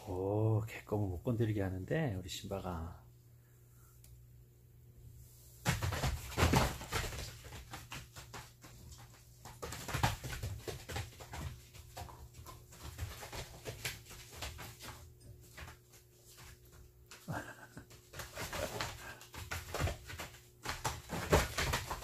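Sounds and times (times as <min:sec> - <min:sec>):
paws scrabbling: 0:05.6 - 0:22.0.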